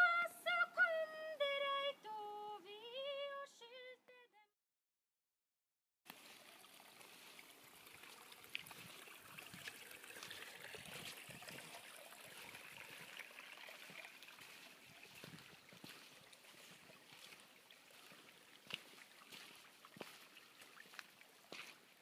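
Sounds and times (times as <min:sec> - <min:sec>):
stream trickling over rocks: 0:06.1 - 0:22.0.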